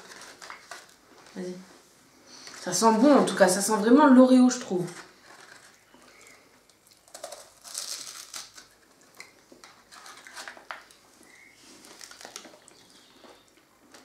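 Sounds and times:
plastic wrapper rustling: 0.0s - 1.6s, 4.6s - 14.0s
crunching bites into wafer cone: 6.9s - 10.7s.

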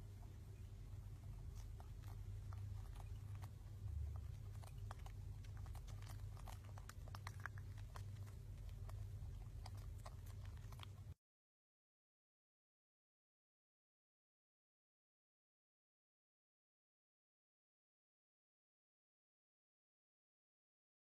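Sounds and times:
low steady hum: 0.0s - 11.2s.

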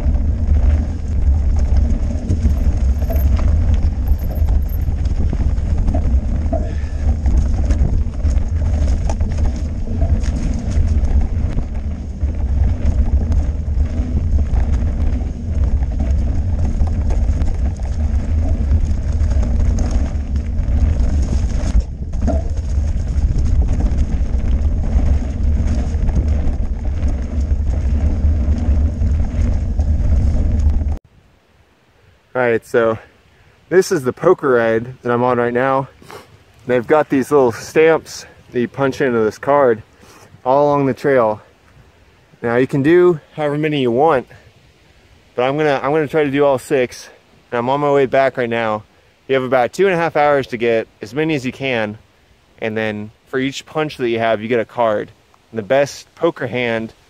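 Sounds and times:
bike rattling over rough ground: 0.0s - 31.0s, 33.8s - 44.5s, 45.4s - 52.0s, 52.6s - 57.0s
wind buffeting microphone: 0.0s - 31.0s.

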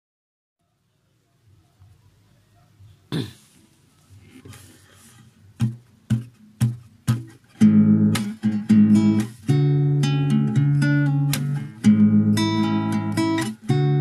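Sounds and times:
acoustic guitar strums: 5.1s - 14.0s.

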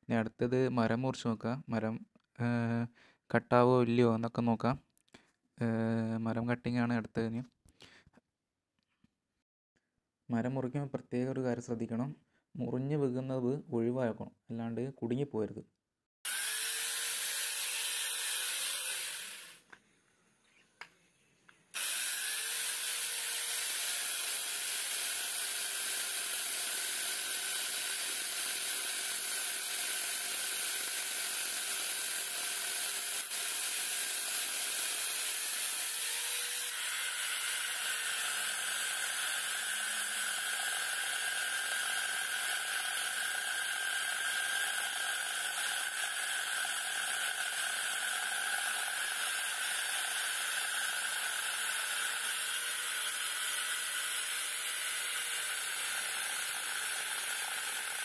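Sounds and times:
electric chainsaw cutting logs: 16.2s - 19.8s, 21.7s - 58.0s.

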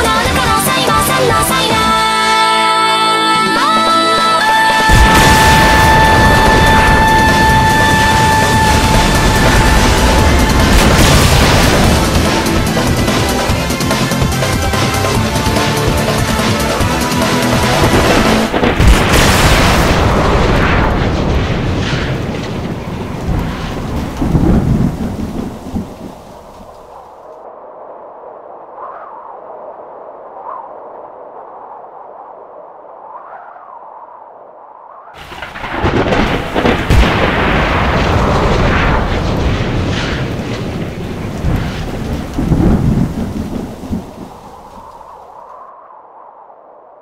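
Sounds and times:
thunderclap-like crash: 4.9s - 26.8s, 35.2s - 45.1s.

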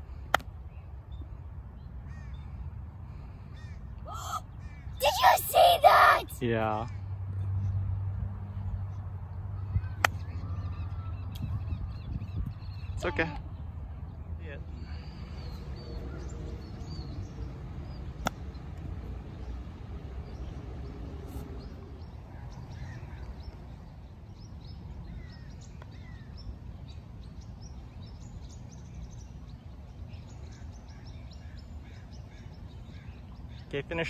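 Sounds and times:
birds chirping: 3.6s - 6.9s.

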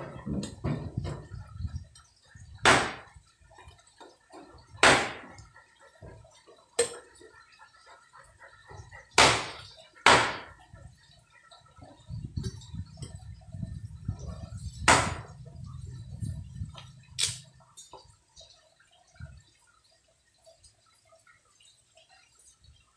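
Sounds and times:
cleaver chopping wood: 2.6s - 3.1s, 4.8s - 5.3s, 9.2s - 10.5s, 14.8s - 15.3s.

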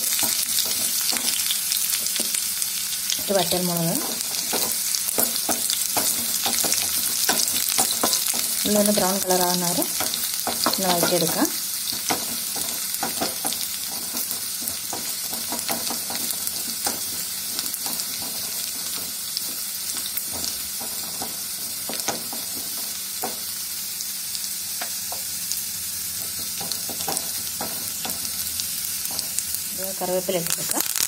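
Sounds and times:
food sizzling in hot oil: 0.0s - 31.0s
spoon stirring: 3.4s - 23.4s.

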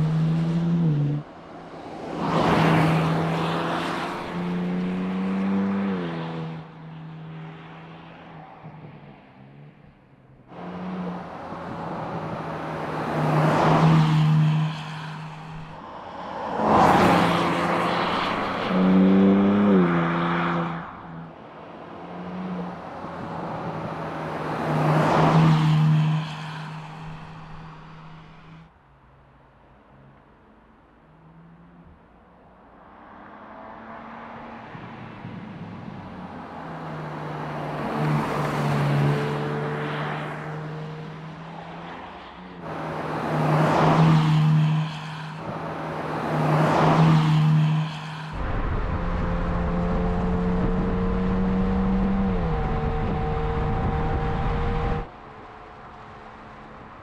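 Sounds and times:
sports car passing by at speed: 0.0s - 28.6s, 32.8s - 57.0s
car engine deep rumble: 48.3s - 56.6s.

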